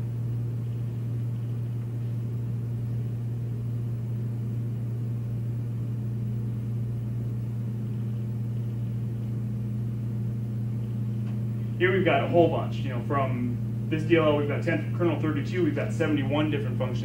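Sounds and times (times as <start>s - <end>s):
low equipment hum: 0.0s - 17.0s.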